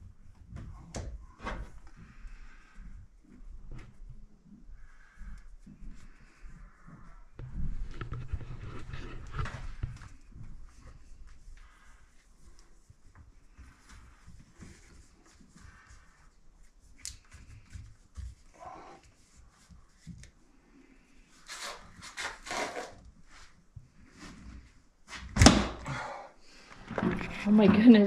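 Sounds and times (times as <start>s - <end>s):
plastic scraping: 26.8s - 28.0s.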